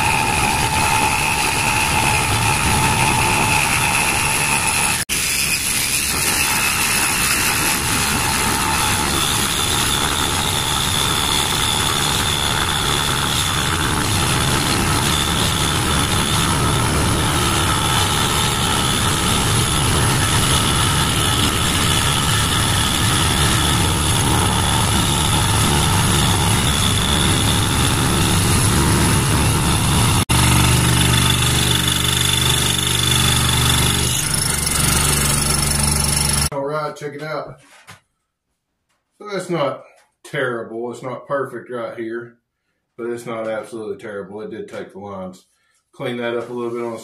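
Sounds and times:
scroll saw cutting wood: 0.0s - 36.5s.

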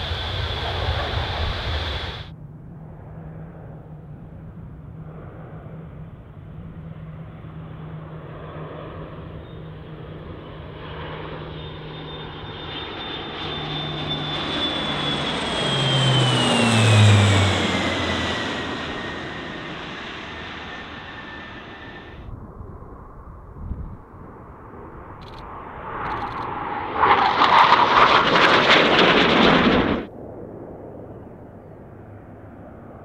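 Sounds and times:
turboprop aircraft flying past: 0.0s - 33.0s.

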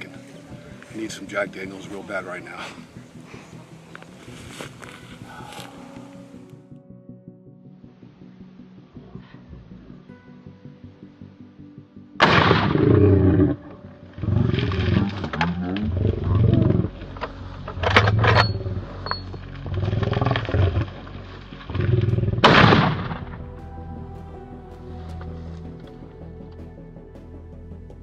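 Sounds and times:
sharp cracks: 12.2s - 13.0s, 19.5s - 23.4s
lion roaring: 12.6s - 17.2s, 19.6s - 21.1s, 21.7s - 23.2s.

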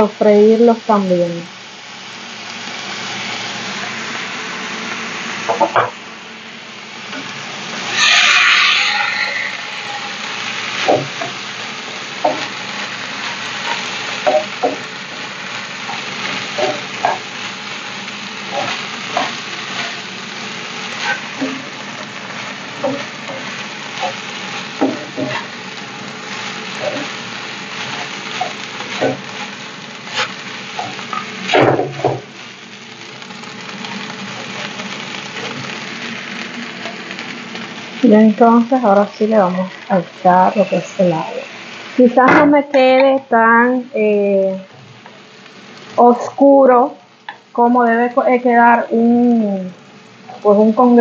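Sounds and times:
food sizzling in frying pan: 0.0s - 51.0s
wooden spoon scraping pan: 26.3s - 32.0s.

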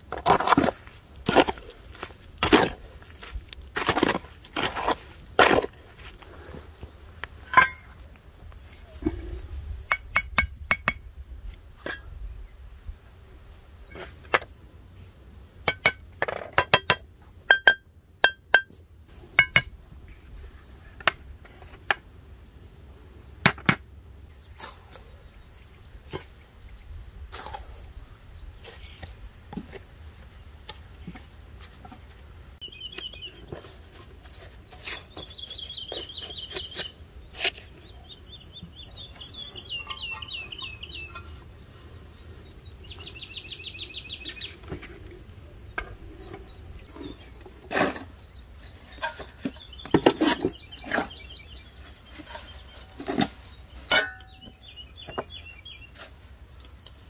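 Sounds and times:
trowel scraping mortar: 0.1s - 5.9s, 33.5s - 37.8s
hammer tapping bricks: 9.9s - 11.0s.

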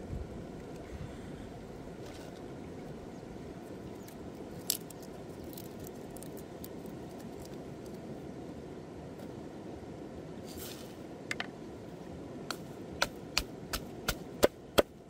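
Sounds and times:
low background rumble: 0.0s - 15.0s
garlic skins crackling: 4.5s - 8.0s.

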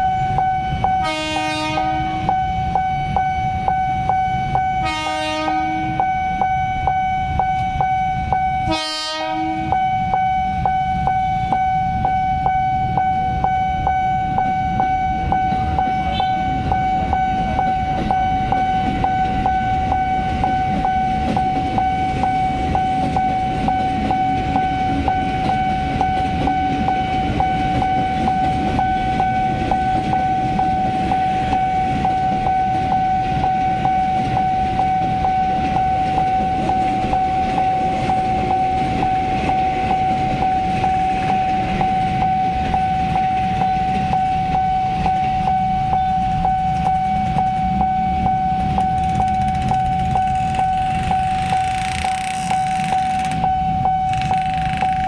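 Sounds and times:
electric train passing: 0.0s - 55.0s
level-crossing warning alarm: 0.0s - 55.0s
motorcycle traffic: 38.8s - 55.0s.

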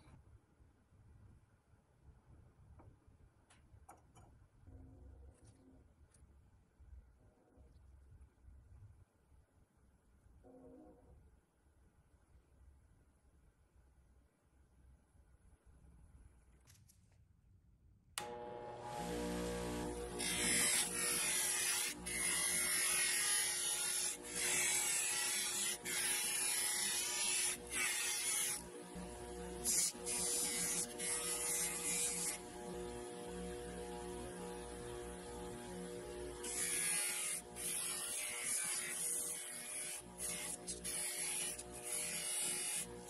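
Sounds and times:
bench grinder motor humming: 18.2s - 43.0s.

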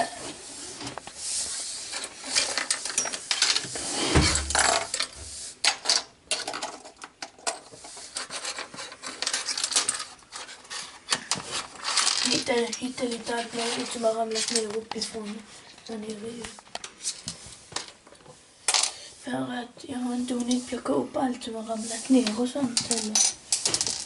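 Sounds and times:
plastic toy bricks clattering: 1.9s - 15.2s, 18.7s - 19.0s, 22.2s - 24.0s.

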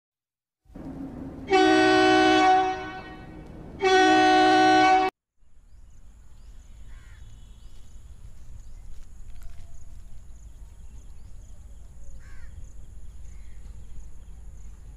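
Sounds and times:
faint outdoor background: 0.6s - 14.9s
train air horn blasts: 0.8s - 5.1s.

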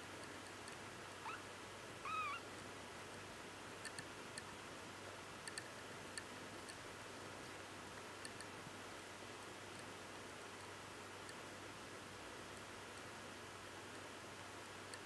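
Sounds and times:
faint ticks: 0.2s - 1.4s, 3.8s - 4.6s, 5.4s - 8.6s, 9.7s - 11.5s, 12.4s - 13.1s
kitten mewing: 2.0s - 2.4s.

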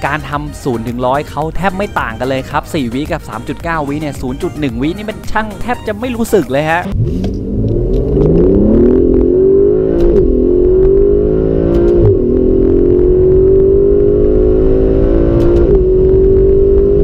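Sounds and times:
gear upshifts: 1.7s - 17.0s
car engine accelerating: 6.7s - 17.0s.

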